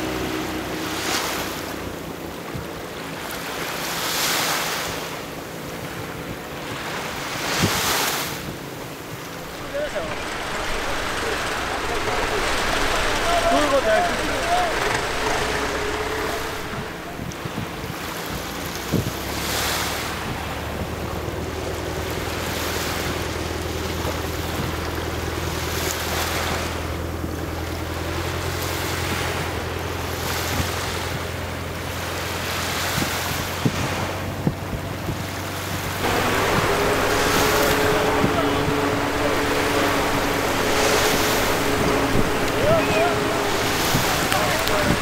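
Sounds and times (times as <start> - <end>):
low engine hum: 0.0 - 45.0
sea waves washing: 0.0 - 45.0.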